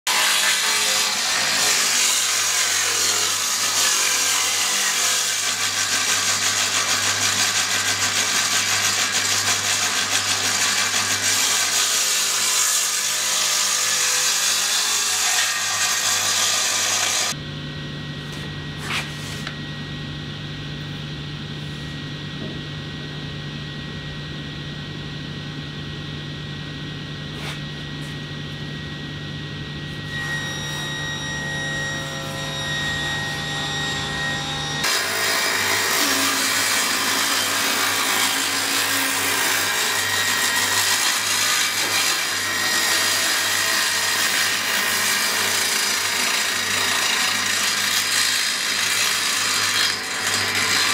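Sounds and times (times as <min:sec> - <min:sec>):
table saw cutting wood: 0:00.1 - 0:17.4, 0:29.8 - 0:50.9
low hum: 0:17.4 - 0:34.8.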